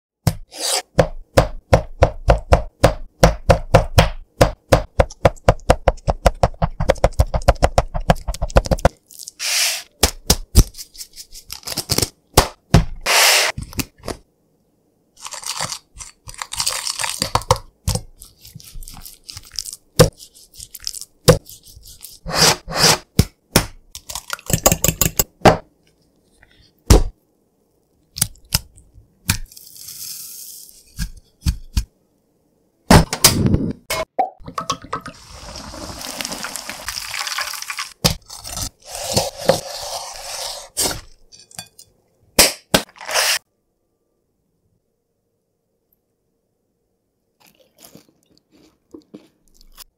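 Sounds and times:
breadcrumbs pouring hiss: 0:29.5 - 0:30.8, 0:35.2 - 0:38.0.

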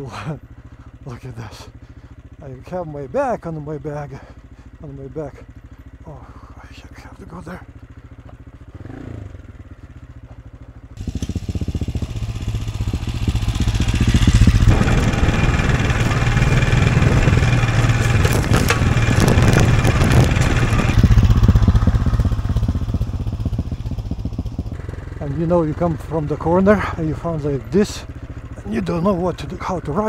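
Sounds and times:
motorcycle engine: 0:00.0 - 0:30.0
stones knocking: 0:17.1 - 0:20.9.

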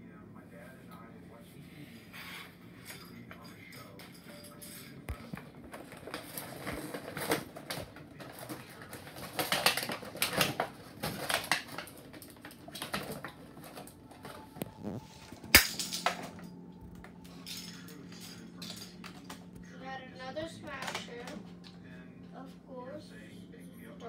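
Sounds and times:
plastic packaging crinkling: 0:05.4 - 0:17.3
loud plastic crack: 0:05.7 - 0:16.4.

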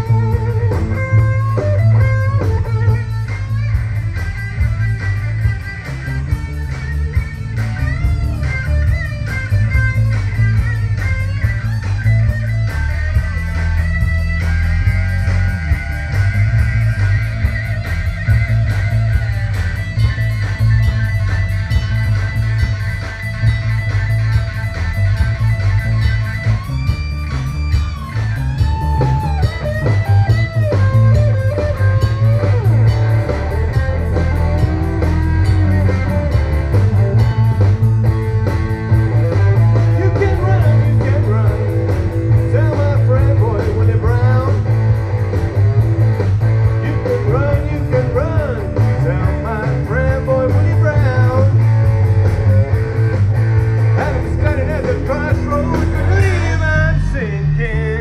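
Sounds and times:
rock band playing live: 0:00.0 - 0:58.0
man singing into microphone: 0:42.5 - 0:44.6, 0:46.8 - 0:51.6, 0:54.0 - 0:58.0.

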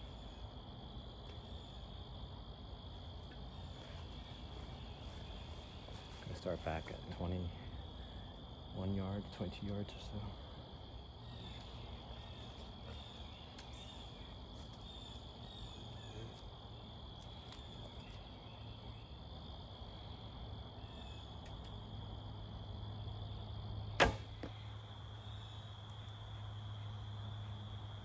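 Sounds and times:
insect chirring: 0:00.0 - 0:28.0
bow string snap: 0:24.0 - 0:24.6.

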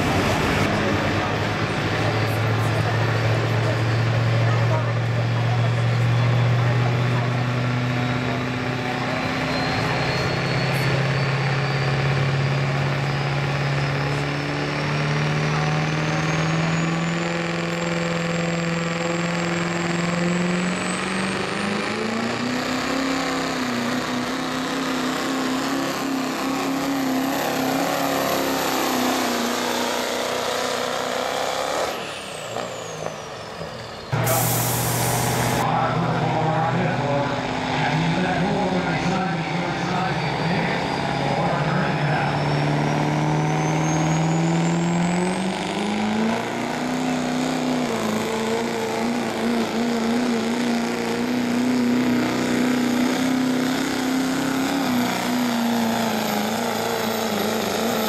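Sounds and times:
diesel engine drone: 0:00.0 - 0:58.0
turbocharger whistle: 0:07.9 - 0:13.6, 0:15.5 - 0:24.3, 0:24.9 - 0:35.6, 0:38.5 - 0:58.0
engine with hiss: 0:34.1 - 0:35.6.

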